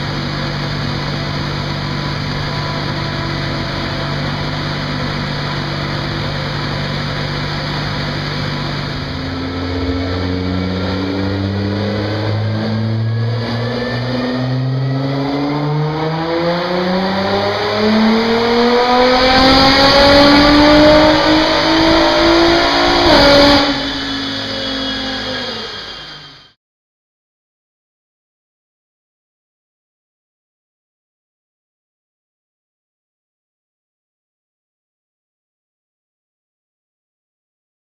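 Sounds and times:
car engine revving on dynamometer: 0:00.0 - 0:26.6.

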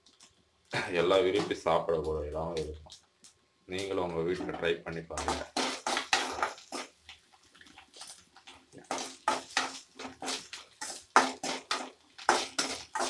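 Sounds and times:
prawns frying in oil: 0:00.0 - 0:13.0
metal spatula scraping a pan: 0:04.3 - 0:07.0, 0:08.8 - 0:13.0.

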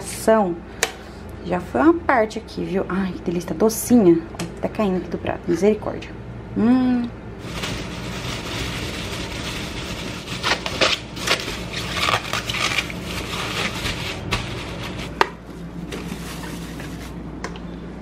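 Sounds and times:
plastic bag crinkling: 0:07.4 - 0:17.2.

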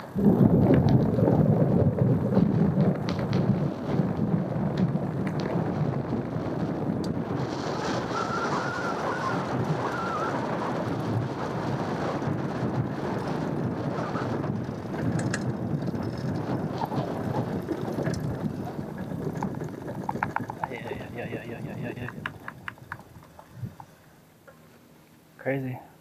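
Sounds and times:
tyre and wind noise: 0:00.0 - 0:25.0
sharp ticks: 0:15.0 - 0:16.5, 0:19.2 - 0:23.9.

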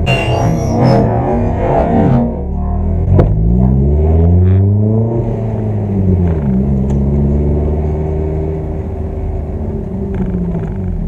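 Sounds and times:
car engine from inside cabin: 0:00.2 - 0:11.0.

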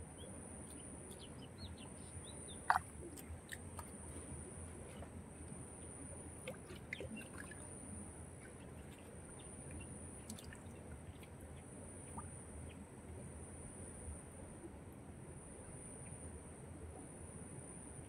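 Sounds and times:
water drips: 0:02.6 - 0:04.0, 0:06.4 - 0:07.7, 0:08.4 - 0:11.4
hands sloshing in muddy water: 0:06.4 - 0:07.8.

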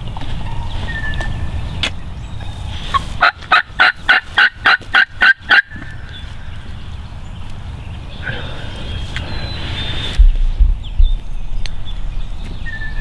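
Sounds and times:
turkey yelping: 0:03.2 - 0:05.7.

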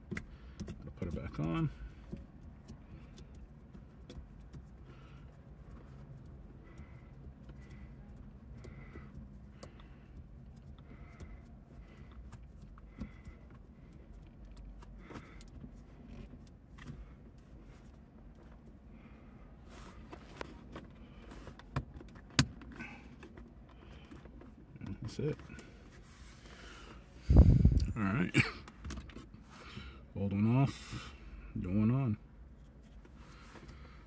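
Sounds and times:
shift knob clicking and rubbing: 0:00.0 - 0:04.8, 0:20.0 - 0:26.3
low steady hum: 0:00.0 - 0:34.0.

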